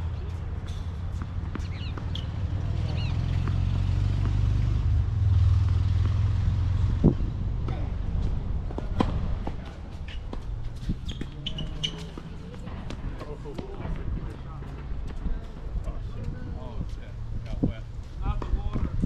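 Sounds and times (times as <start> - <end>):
bird chirp: 1.6 - 3.4.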